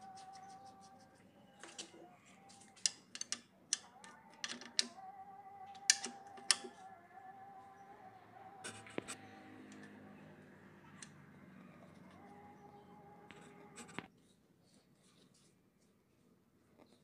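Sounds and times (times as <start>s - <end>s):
metallic clicks and taps: 2.6s - 5.0s, 5.8s - 6.8s.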